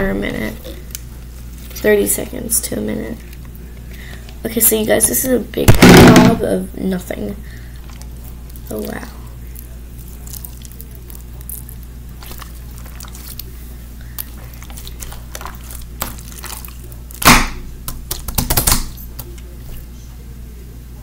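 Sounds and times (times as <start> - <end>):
slime squishing: 7.7 - 19.9.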